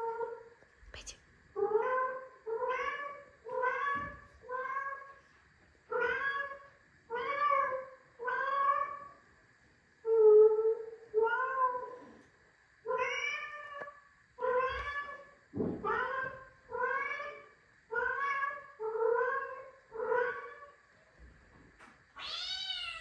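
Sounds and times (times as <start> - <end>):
recorded cat meowing: 22.2 - 23.0.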